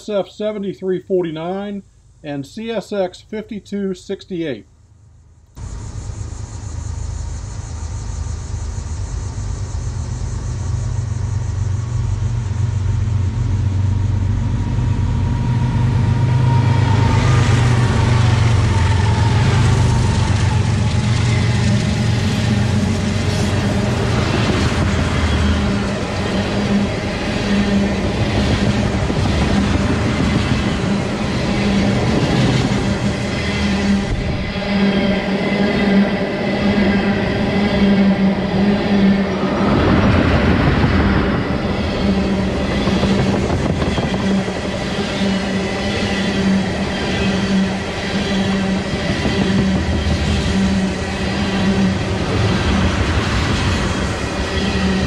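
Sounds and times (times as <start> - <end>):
locomotive engine drone: 0.0 - 55.0
train wheels clickety-clack: 16.9 - 34.2, 39.8 - 55.0.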